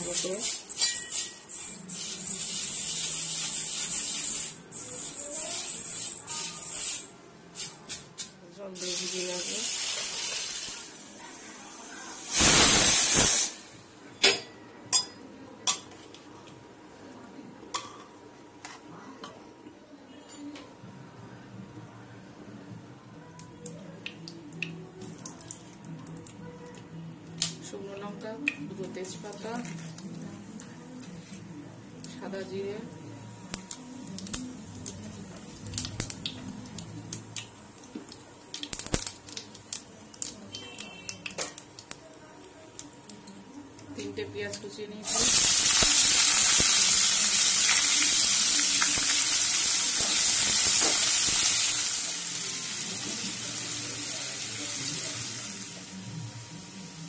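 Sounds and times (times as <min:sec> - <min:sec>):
spoon clinking on metal cooker: 0:00.7 - 0:01.4
pressure cooker steam hiss: 0:08.8 - 0:13.7, 0:45.0 - 0:56.0
seeds crackling in hot oil: 0:33.5 - 0:42.0, 0:45.1 - 0:55.8.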